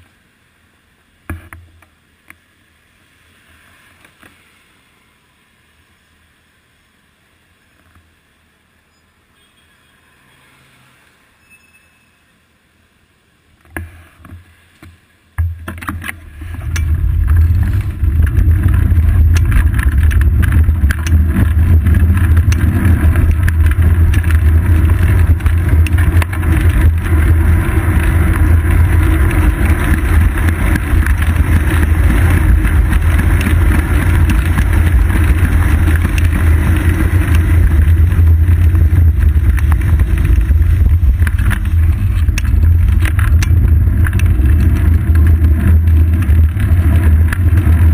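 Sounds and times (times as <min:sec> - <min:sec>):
bicycle road rumble: 0:00.0 - 0:47.9
wind buffeting: 0:16.2 - 0:47.9.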